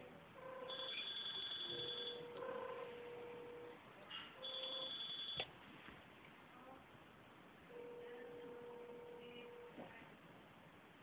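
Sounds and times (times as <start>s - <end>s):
low steady tone: 0.0s - 5.3s, 7.7s - 9.8s
two-tone telephone ring: 0.4s - 2.8s, 4.4s - 5.4s.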